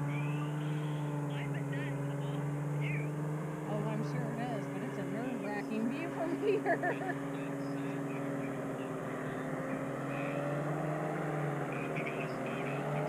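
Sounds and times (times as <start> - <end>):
propeller engine droning: 0.0 - 13.0.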